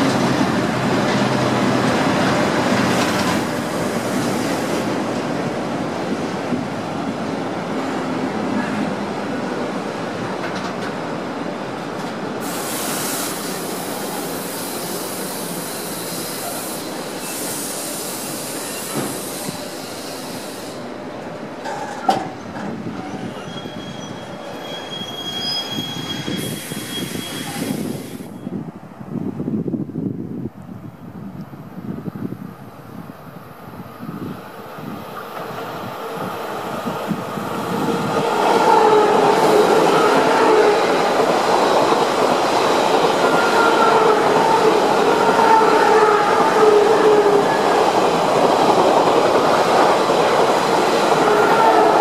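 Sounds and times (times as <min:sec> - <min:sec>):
train wheels rumbling on track: 0:00.0 - 0:52.0
wheel screech and squealing: 0:23.0 - 0:28.1.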